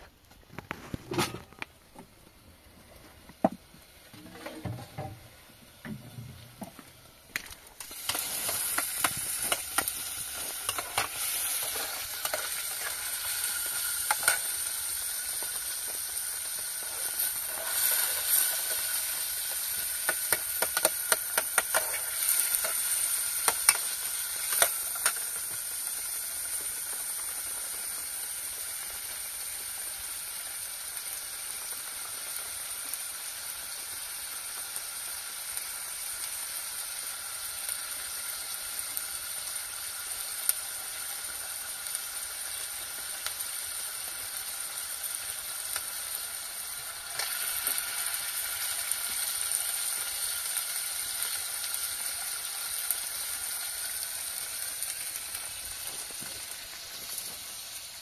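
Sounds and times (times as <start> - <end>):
food sizzling in hot oil: 3.8 - 58.0
oil crackling pops: 5.8 - 28.0, 44.7 - 57.6.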